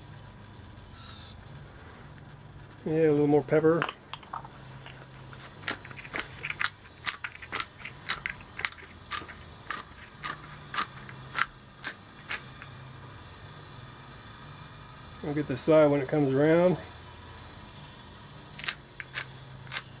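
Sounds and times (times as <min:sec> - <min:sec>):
pepper mill grinding: 0:03.7 - 0:12.8, 0:18.6 - 0:20.0.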